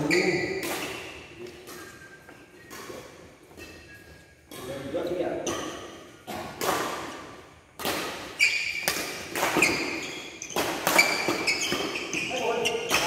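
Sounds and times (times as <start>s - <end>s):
shoes squeaking on court: 0.0s - 4.8s, 8.3s - 13.0s
rackets striking shuttlecock: 0.5s - 12.1s.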